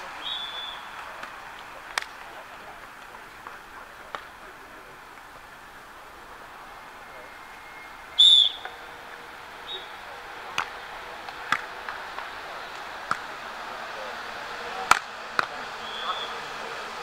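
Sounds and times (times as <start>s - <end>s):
steady outdoor hiss: 0.0s - 17.0s
volleyball struck by hand: 13.0s - 13.3s.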